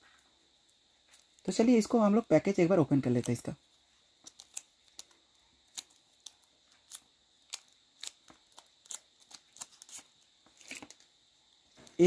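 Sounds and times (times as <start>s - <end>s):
packaging crackling and clicking: 4.2s - 11.1s.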